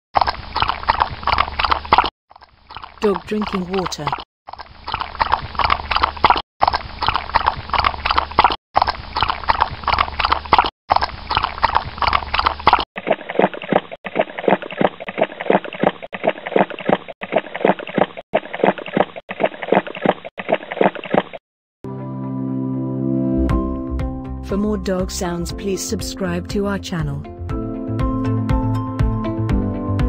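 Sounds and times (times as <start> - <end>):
dog lapping water from metal bowl: 0.2 - 21.3
dog lapping from plastic bottle: 0.2 - 21.4.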